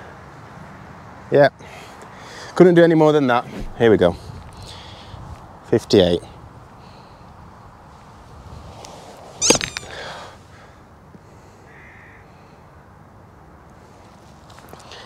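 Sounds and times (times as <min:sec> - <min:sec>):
golf club striking ball and turf: 0:03.5 - 0:04.3
crow cawing: 0:11.6 - 0:12.5.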